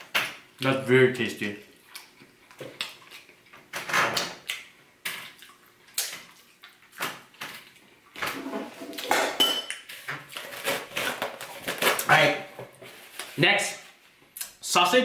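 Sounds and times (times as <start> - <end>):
plates and cutlery clinking: 8.2 - 9.9.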